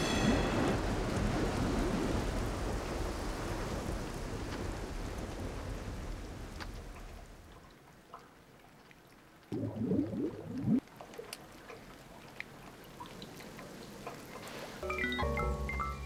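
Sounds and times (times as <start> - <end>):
low gurgling liquid: 0.3 - 14.9
water drips: 6.6 - 14.9.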